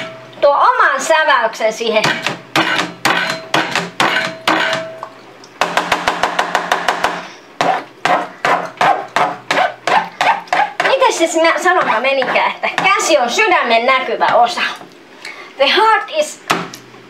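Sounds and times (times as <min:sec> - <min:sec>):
potato masher knocking on board: 0:11.7 - 0:13.0.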